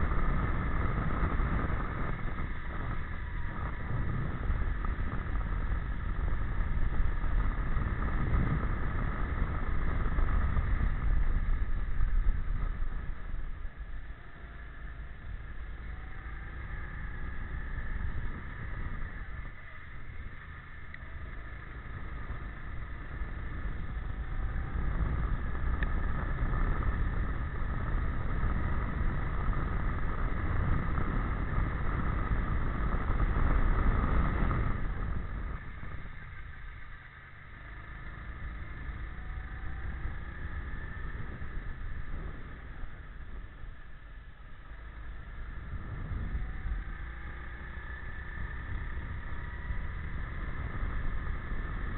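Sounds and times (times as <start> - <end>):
go-kart engine under throttle: 0.0 - 51.9.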